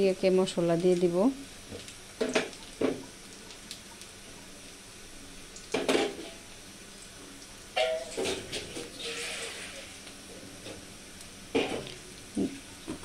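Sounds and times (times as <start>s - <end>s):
onions sizzling in oil: 0.0s - 13.0s
kitchen utensils clattering: 7.8s - 9.8s.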